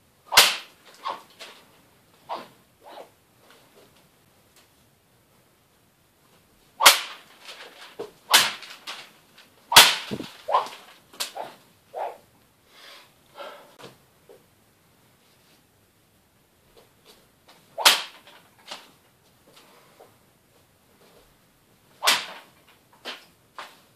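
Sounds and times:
sword blade slicing newspaper: 6.8 - 9.0, 9.7 - 11.5, 22.1 - 22.5.

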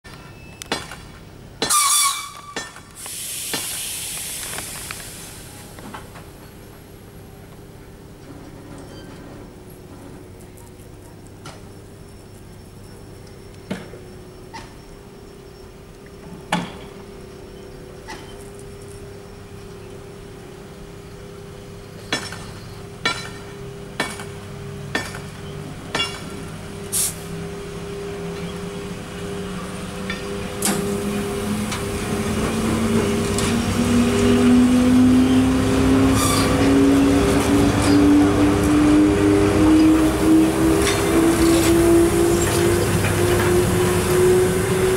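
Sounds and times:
electric locomotive hum: 1.1 - 44.9
rising whine: 26.7 - 44.9.

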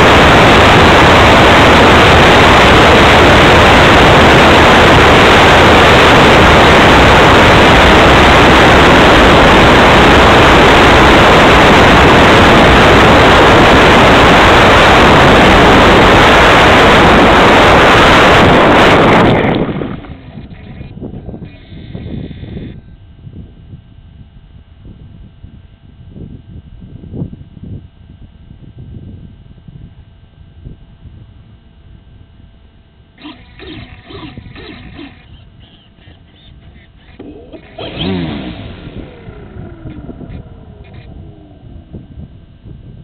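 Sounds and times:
model plane propeller and airflow: 0.0 - 24.0, 32.6 - 43.0.

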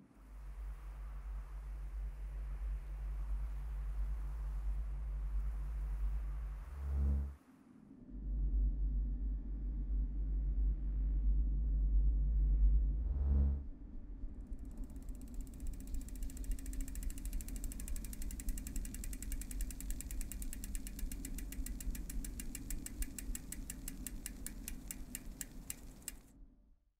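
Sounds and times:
low steady hum: 0.0 - 26.4
bicycle freewheel hub ticking: 14.5 - 26.3.

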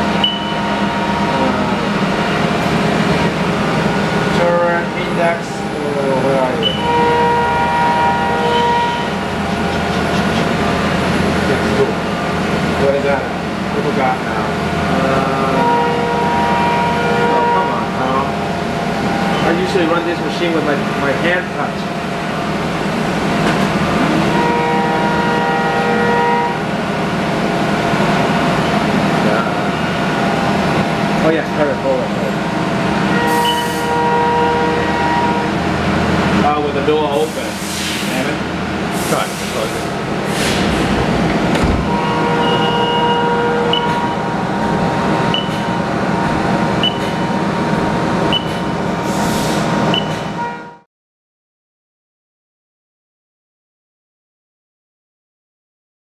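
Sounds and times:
steady machine whine: 0.0 - 50.5
lathe mechanical hum: 0.0 - 50.6
lathe hiss and hum: 36.0 - 46.8.

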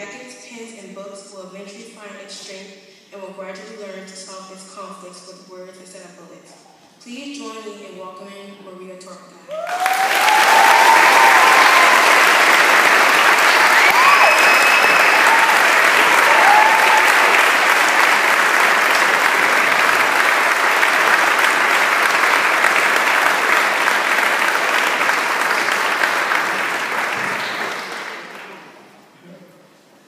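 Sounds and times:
audience applauding: 9.5 - 28.8.

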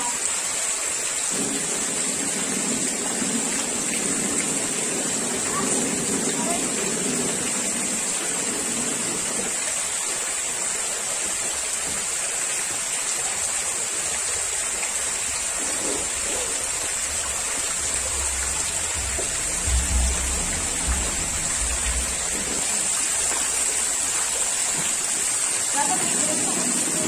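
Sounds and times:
fountain jets splashing into water: 0.0 - 27.0
low thumps: 15.4 - 23.9.

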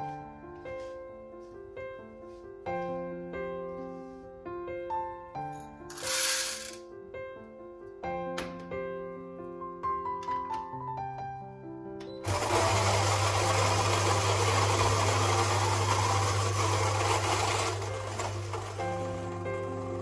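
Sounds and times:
coffee grinder whirring: 5.9 - 6.8, 12.2 - 20.0.

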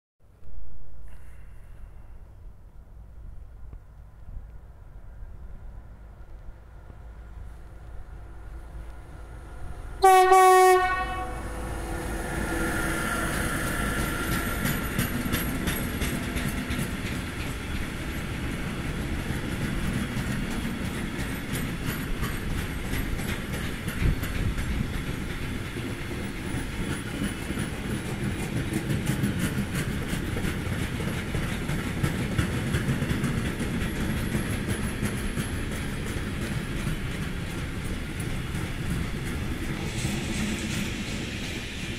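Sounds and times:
train wheels clicking on rail joints: 6.2 - 41.9
locomotive horn blast: 10.0 - 12.2.

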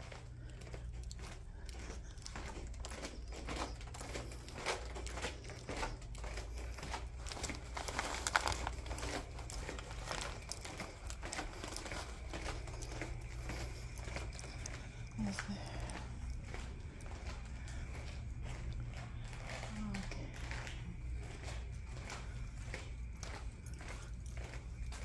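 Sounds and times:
footsteps on hardwood floor: 0.0 - 25.0
steady low hum: 0.0 - 25.0.

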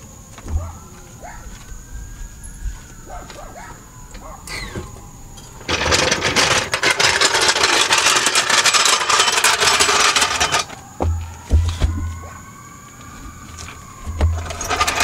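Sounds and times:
power tool rattling: 5.6 - 10.7, 14.3 - 15.0
low thump: 11.0 - 12.2.

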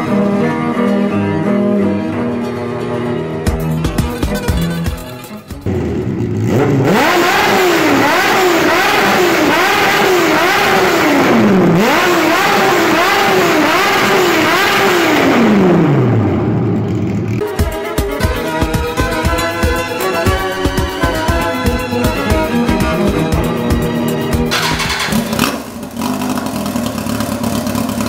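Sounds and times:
motorcycle engine revving: 4.5 - 17.5, 20.2 - 28.0.

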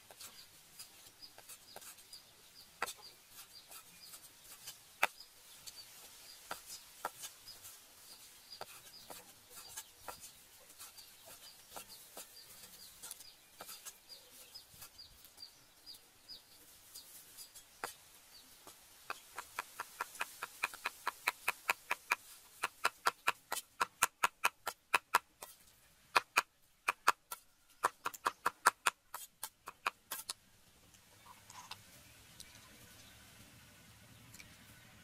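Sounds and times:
cleaver chopping on wooden block: 19.1 - 25.5, 26.1 - 30.3.

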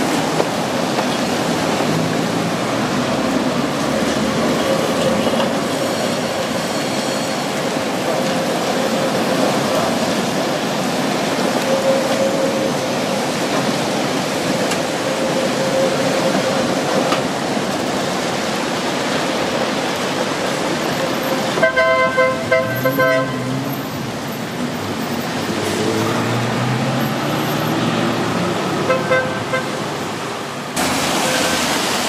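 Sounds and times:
street traffic on wet road: 0.0 - 32.0
trams passing: 0.0 - 32.0
vehicle horn short toots: 21.6 - 23.4.

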